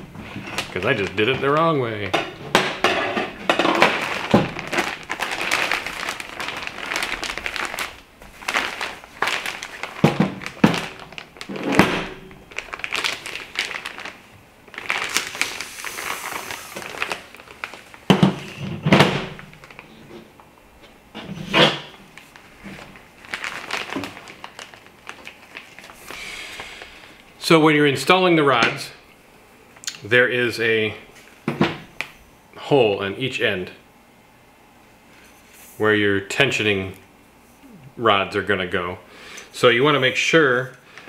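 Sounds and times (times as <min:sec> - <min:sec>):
fabric rustling and crinkling: 0:02.7 - 0:20.5, 0:21.5 - 0:26.2.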